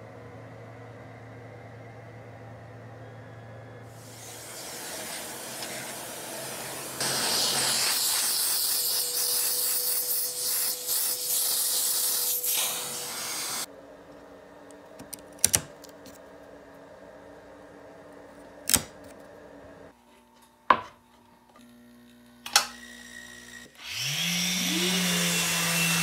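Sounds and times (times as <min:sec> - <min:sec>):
rushing hiss of air: 0:03.9 - 0:13.7.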